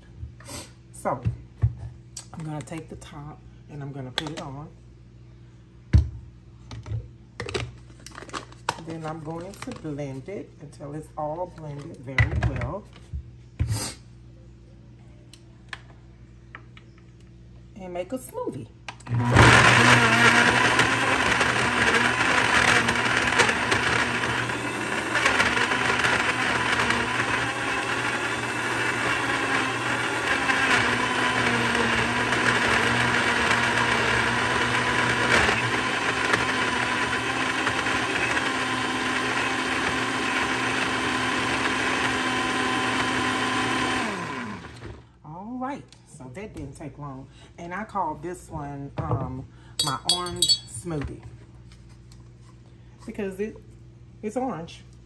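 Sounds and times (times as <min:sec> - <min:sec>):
blender motor running: 0:19.0 - 0:45.1.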